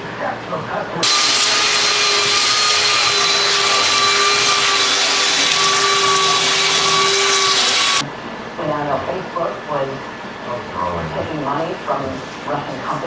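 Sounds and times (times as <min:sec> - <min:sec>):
belt sander on wood: 0:01.0 - 0:08.0.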